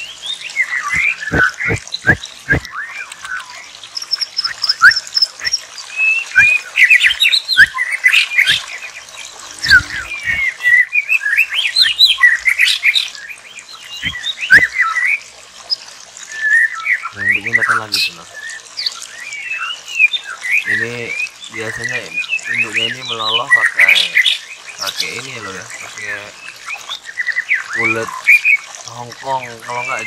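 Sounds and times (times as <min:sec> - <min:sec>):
nestlings squeaky chirping: 0:00.8 - 0:10.9, 0:11.5 - 0:14.8.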